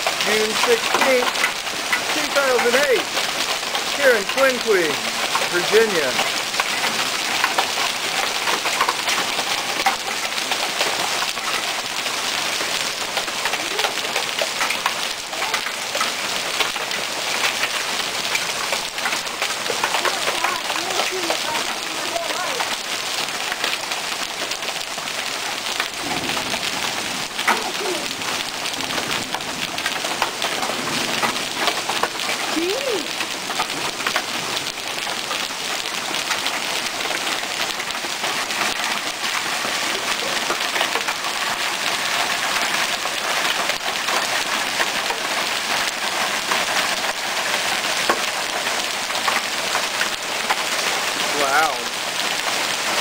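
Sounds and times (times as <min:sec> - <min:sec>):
hailstones ticking: 0:00.0 - 0:53.0
heavy rain hiss: 0:00.0 - 0:53.0.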